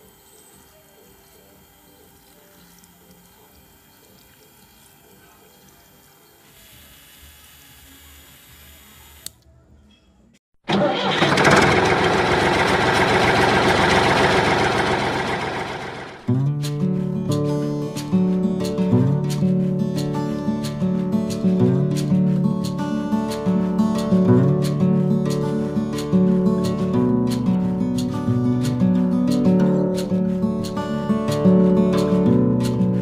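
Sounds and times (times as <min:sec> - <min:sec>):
small electric motor whirring: 0:00.0 - 0:09.4.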